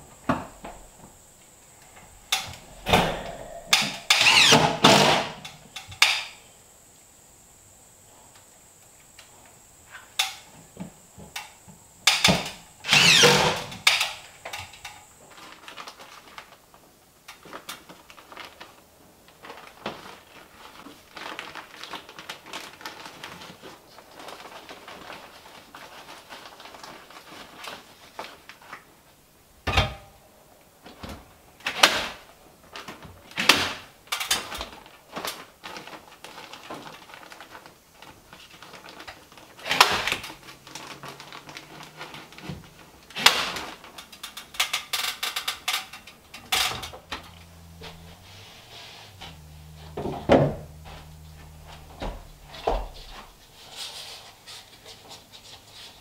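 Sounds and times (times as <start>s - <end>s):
cordless drill motor whine: 3.5s - 5.3s, 12.8s - 14.0s.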